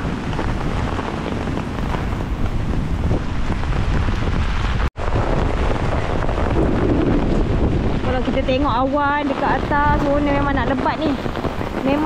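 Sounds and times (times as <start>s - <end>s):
heavy rain on flooded street: 0.0s - 12.0s
wind buffeting microphone: 0.0s - 12.0s.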